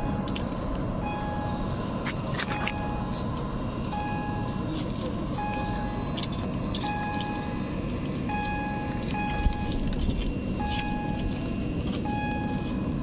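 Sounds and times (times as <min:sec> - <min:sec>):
short electronic beeps: 0:02.5 - 0:03.2, 0:05.4 - 0:09.9, 0:10.6 - 0:11.4, 0:12.0 - 0:12.8.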